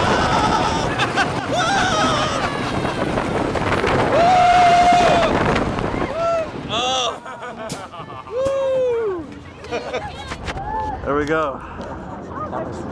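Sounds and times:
riders yelling and screaming: 0:00.0 - 0:03.2, 0:04.0 - 0:07.3
roller coaster rumbling on track: 0:00.0 - 0:12.9
rush of wind: 0:00.0 - 0:12.9.

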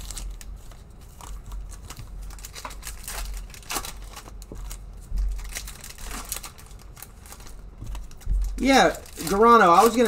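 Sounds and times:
foil wrapper crinkling: 0:00.0 - 0:10.0.

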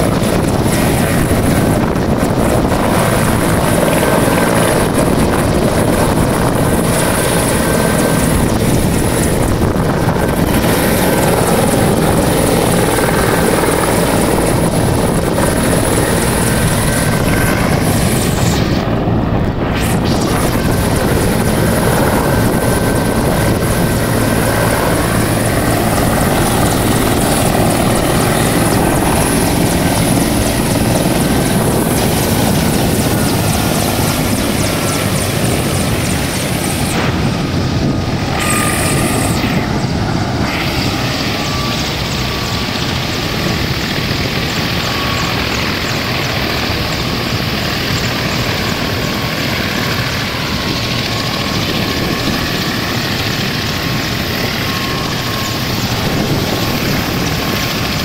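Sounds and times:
helicopter rotor and turbine: 0:00.0 - 0:58.0.

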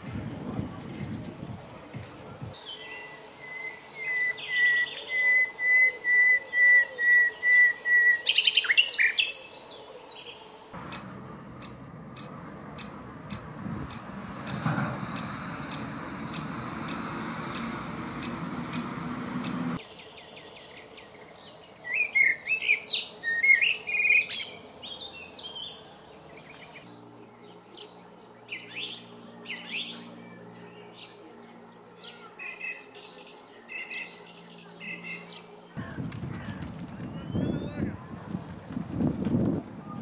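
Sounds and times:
songbird singing quietly: 0:00.7 - 0:35.6, 0:36.9 - 0:38.6
blackbird singing: 0:00.8 - 0:36.0, 0:37.0 - 0:38.6
woodpecker sharp notes: 0:10.8 - 0:19.8.

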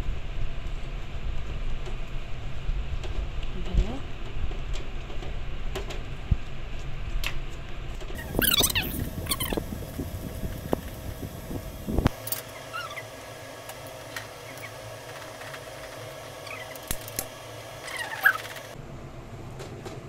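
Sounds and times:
faint steady hum: 0:08.2 - 0:20.0.

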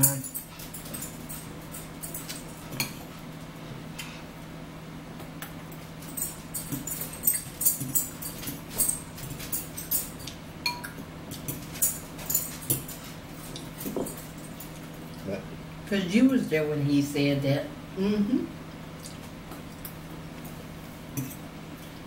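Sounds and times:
forks clicking against bowls: 0:00.0 - 0:03.0, 0:06.0 - 0:14.8
steady low hum: 0:00.0 - 0:22.0
chewing: 0:19.0 - 0:19.9.

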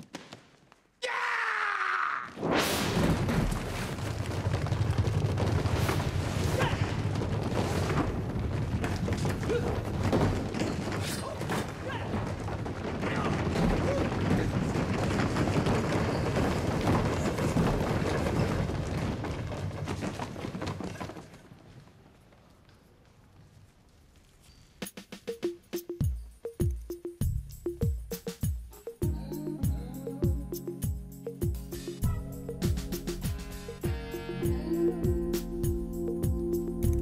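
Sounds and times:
running feet rumble: 0:03.2 - 0:22.6.

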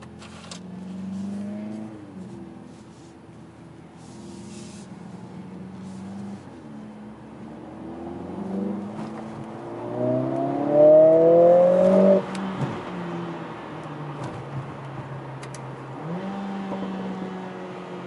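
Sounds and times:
car engine accelerating: 0:00.4 - 0:02.8, 0:04.0 - 0:18.0.

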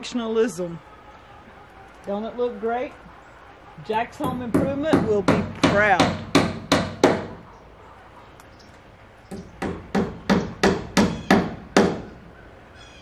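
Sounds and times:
hammer blows: 0:04.2 - 0:07.4.

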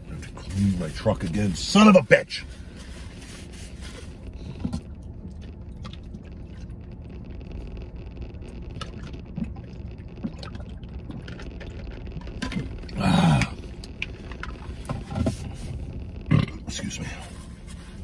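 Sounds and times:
low rumble inside truck cab: 0:00.0 - 0:18.0
person gulping water: 0:08.7 - 0:15.4, 0:16.2 - 0:16.7.

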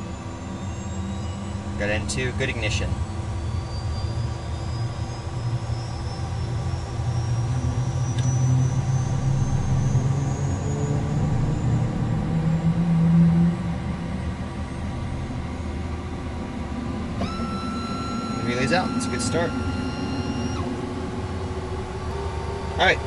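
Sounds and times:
jet engine whine spooling up: 0:00.0 - 0:23.0
low engine rumble: 0:00.0 - 0:23.0.

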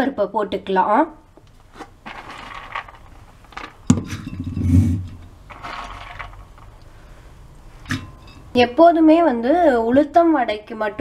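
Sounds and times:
dull thud in jar: 0:03.9 - 0:05.1.

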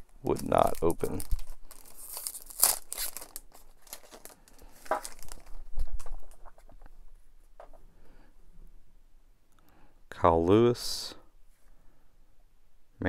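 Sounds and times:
plastic wrapper crinkling and tearing: 0:00.0 - 0:06.9.

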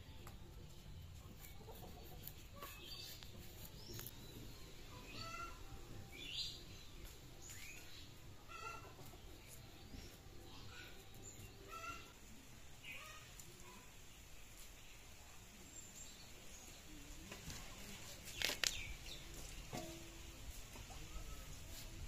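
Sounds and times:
chicken clucking: 0:00.2 - 0:13.6.

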